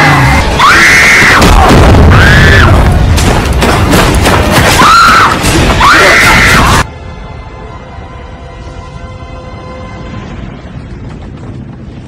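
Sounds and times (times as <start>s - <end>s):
explosion blast and rumble: 1.0s - 6.9s.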